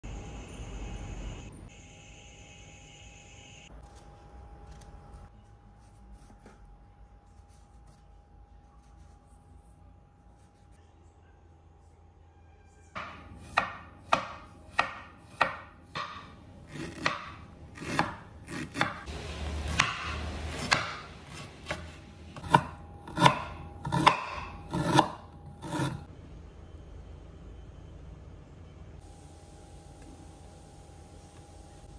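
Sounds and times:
knife chopping ginger on wooden board: 13.0 - 19.1, 19.7 - 26.0.

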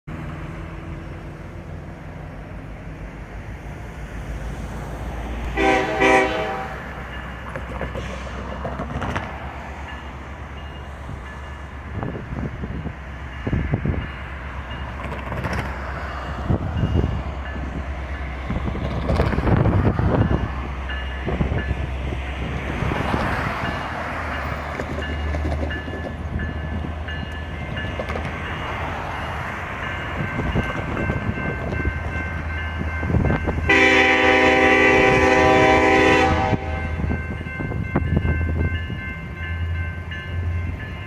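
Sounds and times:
diesel locomotive rumble: 0.1 - 41.0
train horn blast: 5.5 - 7.0, 33.7 - 37.2
crossing bell ringing: 5.5 - 8.0, 9.6 - 15.2, 15.8 - 18.6, 19.8 - 41.0.

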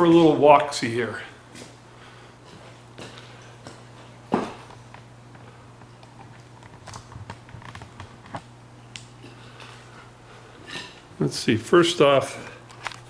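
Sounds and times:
steady low hum: 0.0 - 13.0
light footsteps: 1.4 - 11.1.

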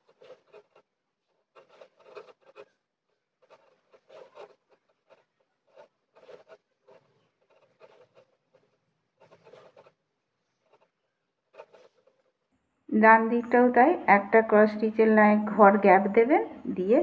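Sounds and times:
yarn scratching through fabric: 0.0 - 12.4.

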